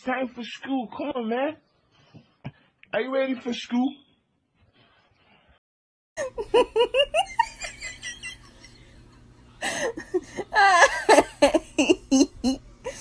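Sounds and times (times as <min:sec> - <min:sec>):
person laughing hard: 0:06.2 - 0:09.0, 0:09.6 - 0:13.0.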